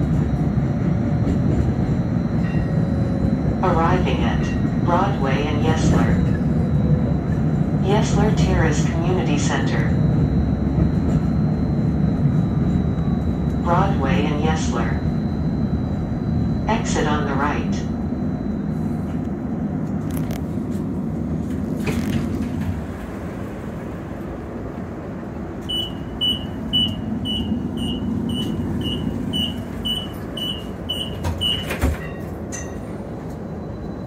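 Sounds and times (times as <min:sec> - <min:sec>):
streetcar rumbling: 0:00.0 - 0:34.0
door warning beeping: 0:25.6 - 0:33.0.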